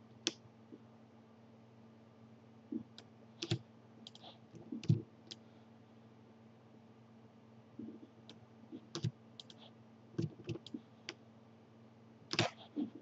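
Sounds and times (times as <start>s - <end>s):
mouse and keyboard clicking: 2.9s - 5.4s, 8.2s - 9.6s, 10.2s - 11.2s, 12.3s - 12.7s.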